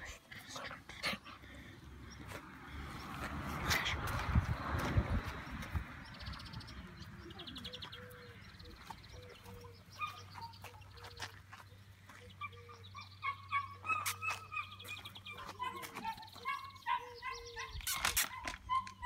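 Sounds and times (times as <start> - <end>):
chickens clucking and calling: 8.1 - 19.0.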